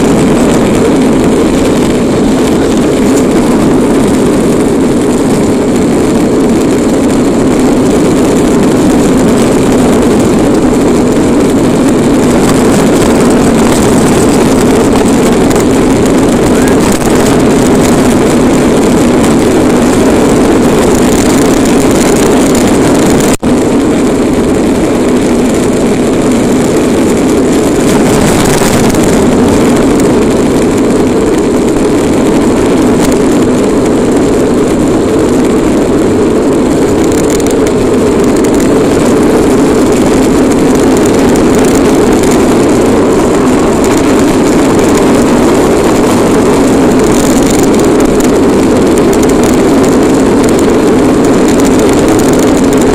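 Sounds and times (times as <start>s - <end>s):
toy car wheels rumbling on asphalt: 0.0s - 52.9s
wind: 0.0s - 52.9s.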